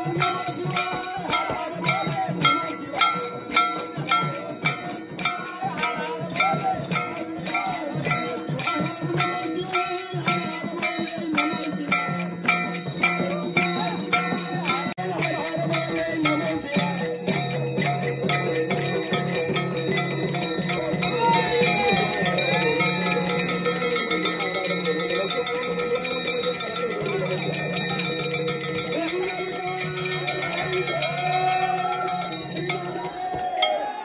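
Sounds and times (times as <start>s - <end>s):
barrel drum: 0.0s - 34.0s
hand cymbals clashing: 0.0s - 34.0s
voices chanting: 18.8s - 34.0s.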